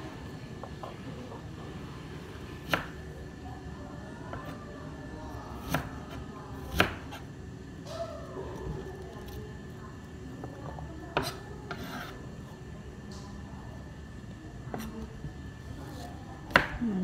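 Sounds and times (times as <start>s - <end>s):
steady background hum: 0.0s - 17.0s
knife chopping on plastic board: 5.6s - 6.0s, 6.7s - 7.2s, 10.7s - 12.1s, 15.9s - 16.8s.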